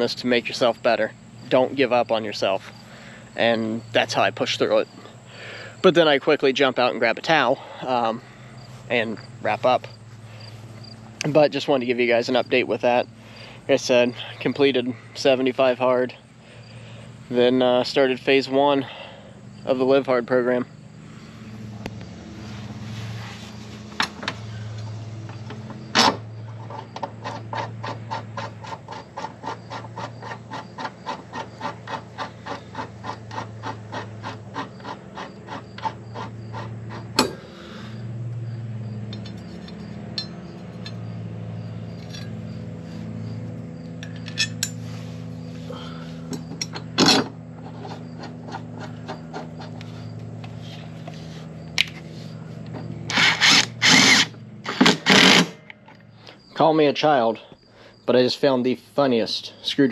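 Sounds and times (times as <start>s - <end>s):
rasping strokes on mower blade: 20.5s - 38.1s, 41.8s - 46.7s, 47.5s - 55.6s
sharp metal clinks: 39.1s - 41.2s.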